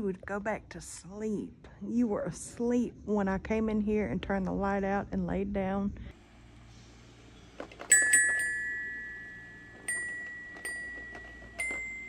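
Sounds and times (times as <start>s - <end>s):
ringing high metal notes: 7.9s - 12.0s.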